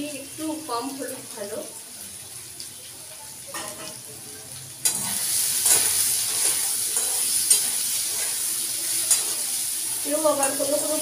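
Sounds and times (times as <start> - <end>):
potatoes sizzling in oil: 0.0 - 11.0
metal spatula scraping pan: 4.9 - 8.5, 9.1 - 9.5.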